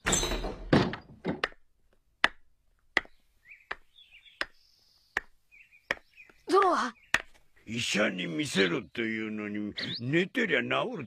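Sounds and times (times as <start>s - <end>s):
door clattering open: 0.0s - 1.4s
slow footsteps: 0.9s - 7.6s
faint bird chirps: 3.2s - 10.3s.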